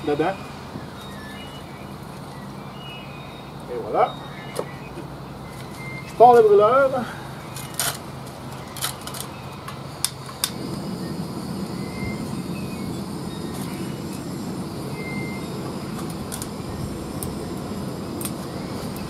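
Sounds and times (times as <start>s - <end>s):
sharp igniter clicks: 7.5s - 19.0s
burner flame rushing: 9.9s - 19.0s.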